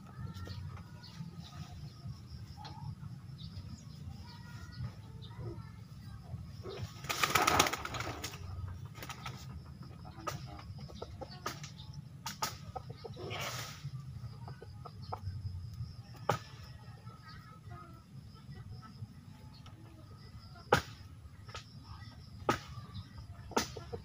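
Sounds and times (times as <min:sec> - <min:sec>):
rooster flapping wings: 0:06.8 - 0:09.6.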